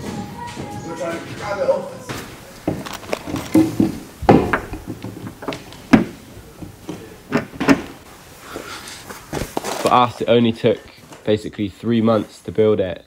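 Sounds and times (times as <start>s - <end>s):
wooden knocks and thuds: 2.1s - 8.0s.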